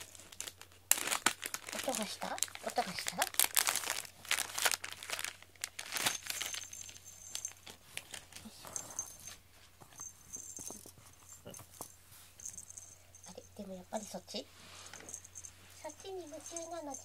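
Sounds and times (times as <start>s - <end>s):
plastic packaging rustling: 0.0s - 9.2s
small bell tinkling: 6.0s - 7.8s, 8.4s - 17.0s.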